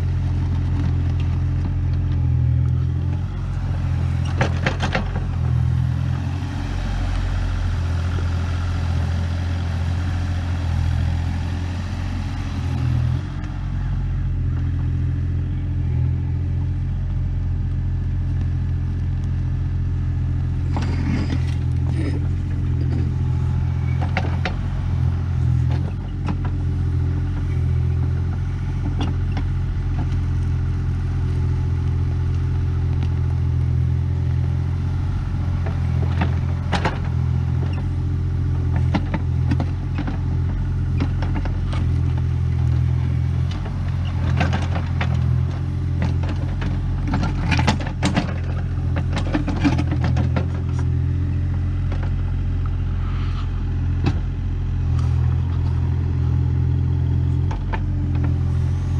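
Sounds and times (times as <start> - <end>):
excavator diesel engine running: 0.0 - 58.9
clanks and rattles of bucket: 46.0 - 50.9.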